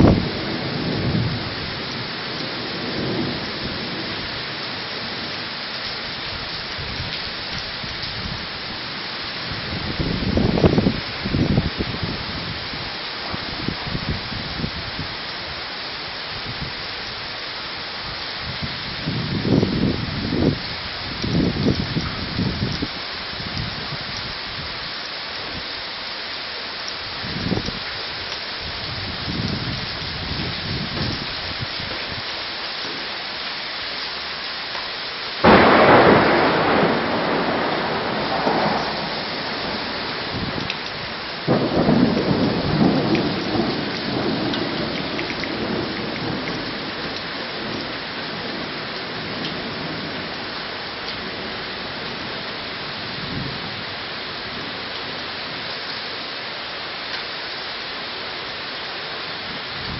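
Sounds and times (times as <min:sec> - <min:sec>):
thunder claps rolling: 0:00.0 - 0:01.8, 0:35.4 - 0:50.4
low thunder rumbles: 0:00.0 - 0:15.1, 0:35.4 - 0:55.7
heavy rain pouring: 0:00.0 - 0:59.9.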